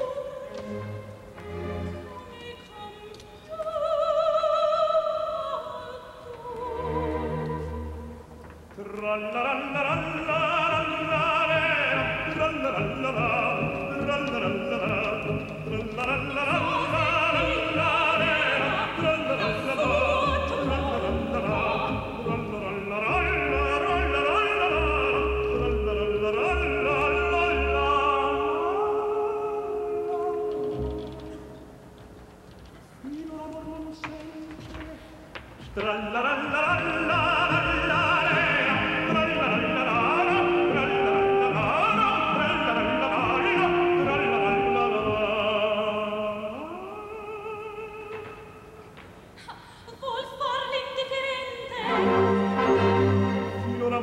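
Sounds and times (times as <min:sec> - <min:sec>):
operatic tenor singing: 0:00.0 - 0:31.6, 0:33.0 - 0:48.8, 0:50.0 - 0:54.0
orchestra playing: 0:00.4 - 0:02.5, 0:10.1 - 0:31.7, 0:36.7 - 0:46.0, 0:51.8 - 0:54.0.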